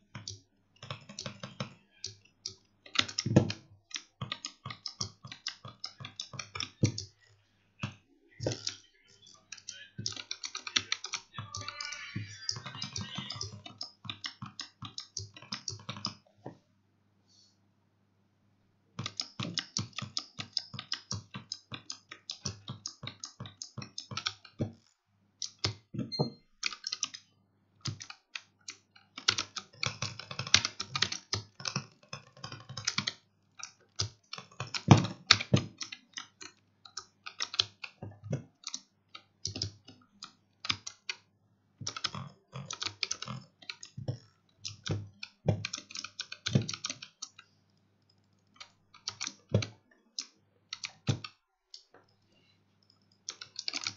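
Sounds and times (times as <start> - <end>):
keyboard keys clacking: 0.0 - 16.2
faint steady hum: 0.0 - 53.9.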